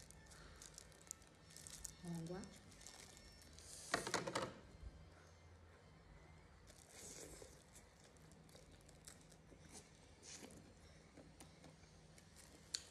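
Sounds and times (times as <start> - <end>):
plastic gloves crinkling: 0.0 - 4.0, 6.6 - 10.5.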